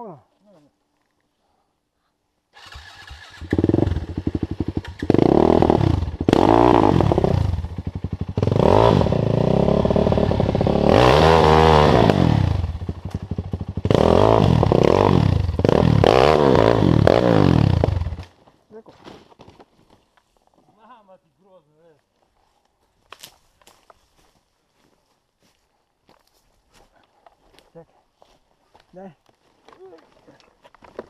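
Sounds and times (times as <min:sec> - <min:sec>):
motorcycle engine revving hard: 0:02.6 - 0:18.2.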